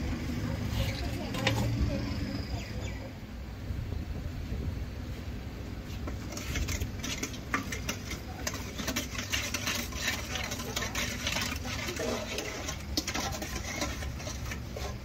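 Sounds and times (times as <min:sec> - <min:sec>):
low steady rumble: 0:00.0 - 0:15.0
irregular clicking and clatter: 0:06.0 - 0:15.0.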